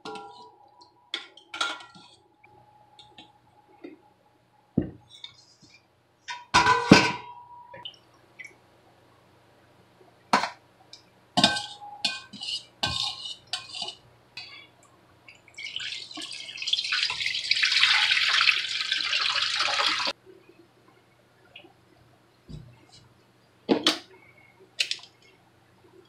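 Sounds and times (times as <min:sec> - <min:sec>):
metal bowls and strainer clinking: 0:00.0 - 0:00.6, 0:11.4 - 0:14.6
liquid pouring and splashing: 0:15.5 - 0:20.1.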